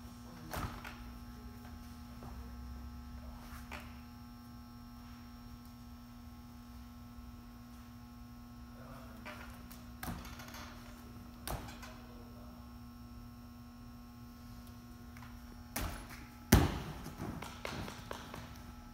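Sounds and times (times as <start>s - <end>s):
electrical hum: 0.0s - 18.9s
landing thud on mat: 15.7s - 18.6s
feet thudding on balance beam: 15.7s - 18.7s.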